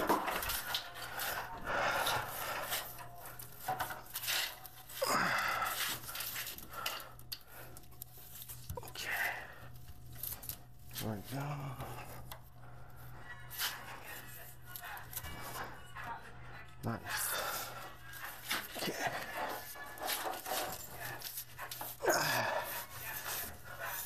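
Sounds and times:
steady low hum: 0.0 - 24.0
cables rubbing and scraping: 5.6 - 24.0.

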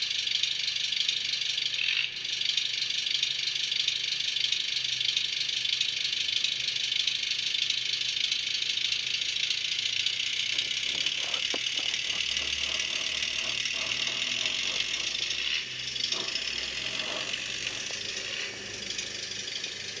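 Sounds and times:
diesel engine sound from tiny speaker: 6.0 - 20.0
model train motor whirring: 7.4 - 20.0
model train wheels rattling on track: 9.6 - 20.0.

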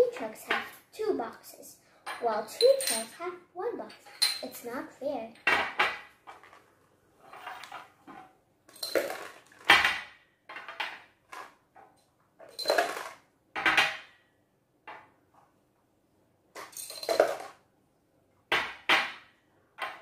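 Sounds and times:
glass jars clinking on table: 2.1 - 3.1, 4.1 - 4.5, 8.7 - 10.0, 12.5 - 14.0, 16.6 - 17.5.

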